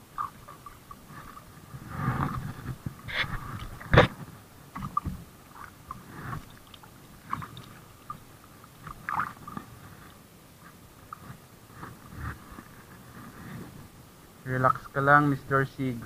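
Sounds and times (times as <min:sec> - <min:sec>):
water sloshing: 0:00.0 - 0:12.7.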